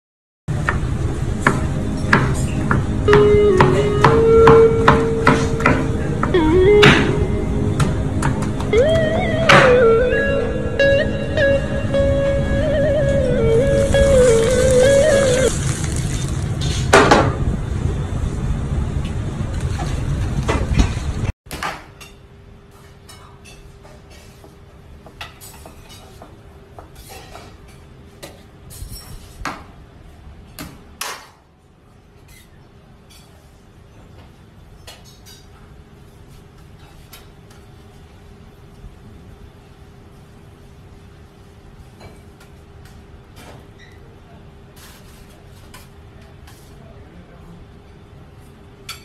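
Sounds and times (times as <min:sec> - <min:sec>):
loud dense sound: 0:00.5 - 0:16.6.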